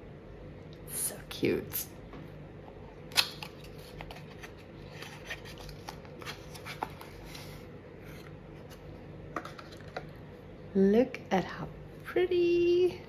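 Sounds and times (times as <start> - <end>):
paper rustling: 3.6 - 8.3.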